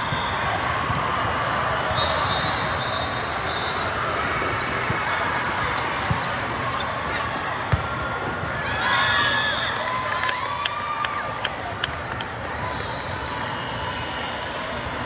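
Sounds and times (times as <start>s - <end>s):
volleyball hits: 7.6s - 8.6s.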